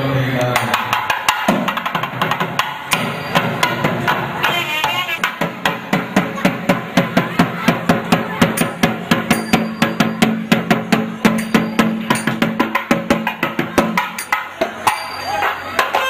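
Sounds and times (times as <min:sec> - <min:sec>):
barrel drum sharp cracking strokes: 0:00.5 - 0:04.6.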